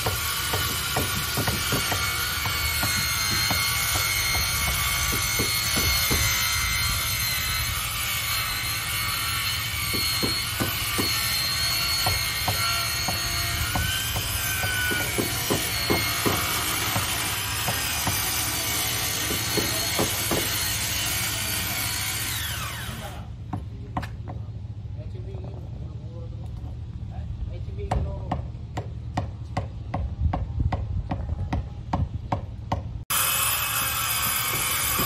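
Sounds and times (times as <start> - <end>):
hammer blows on wood: 0.0 - 6.5, 9.9 - 11.3, 12.0 - 18.2
power tool whining: 0.0 - 23.3, 33.1 - 35.0.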